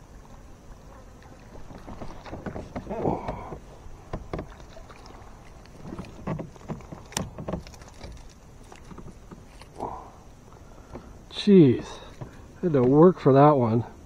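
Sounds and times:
knocks and clicks of fishing gear: 1.6 - 9.8.

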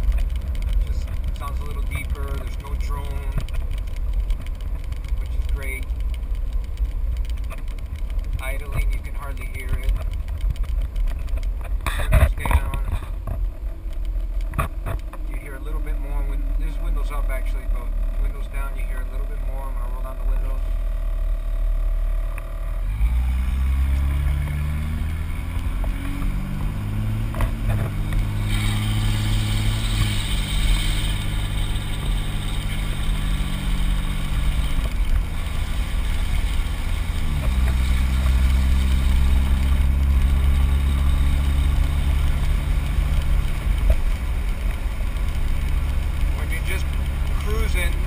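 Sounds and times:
diesel truck engine accelerating: 0.0 - 48.0
tyre road hiss on wet pavement: 28.2 - 48.0.

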